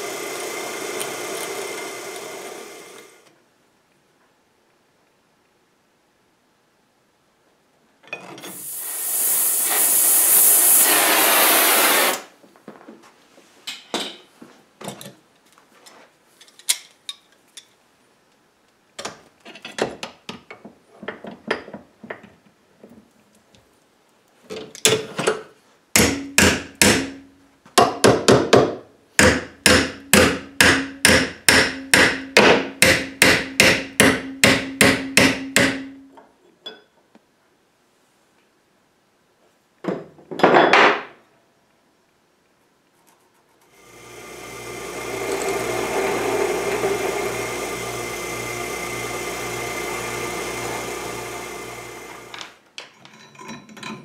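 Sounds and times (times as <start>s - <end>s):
loud hissing noise: 8.5s - 12.4s
hammer striking metal bar: 26.0s - 27.2s, 29.2s - 36.0s
metal being handled: 52.8s - 54.0s.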